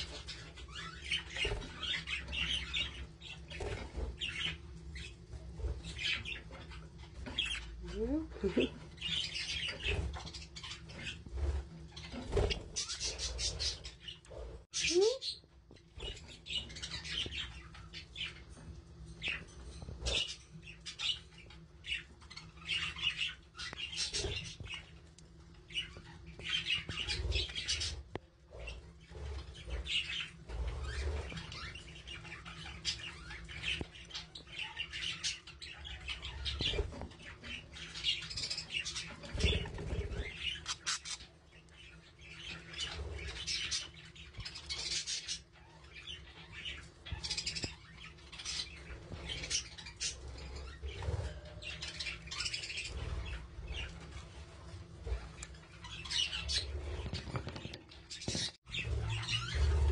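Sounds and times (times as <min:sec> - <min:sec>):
budgerigars chirping: 0:11.9 - 0:15.4, 0:25.7 - 0:59.9.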